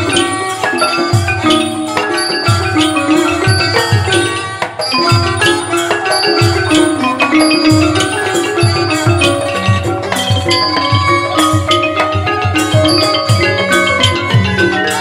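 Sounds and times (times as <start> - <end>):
xylophone and gong-circle notes: 0.0 - 15.0.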